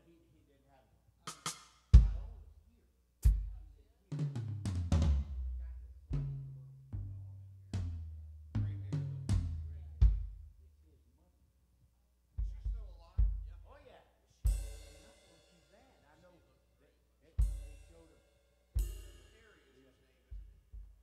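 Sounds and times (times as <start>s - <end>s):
snare or cymbal crack: 1.3s - 2.0s
deep drum strikes: 2.0s - 2.4s, 3.2s - 10.5s, 12.4s - 13.7s.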